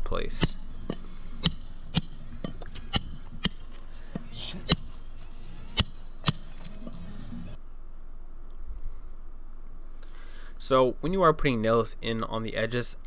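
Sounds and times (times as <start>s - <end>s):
hammer striking metal: 0.0s - 6.6s.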